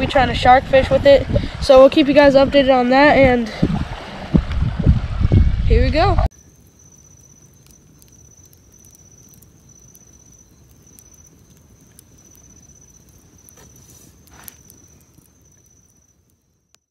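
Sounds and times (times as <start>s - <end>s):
campfire crackling and popping: 5.8s - 16.9s
night insects trilling: 6.3s - 16.9s.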